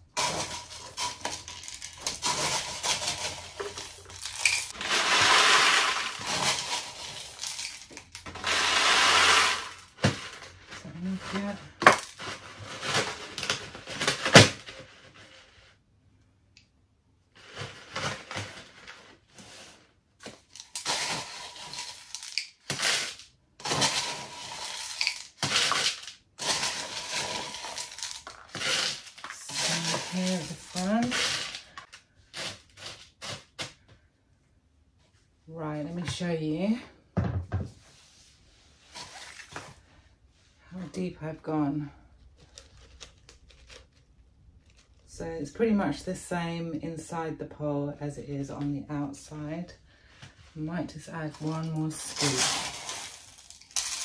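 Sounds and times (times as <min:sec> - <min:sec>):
small stones rattling into plastic pot: 0:00.0 - 0:15.2, 0:20.2 - 0:33.7, 0:51.2 - 0:54.0.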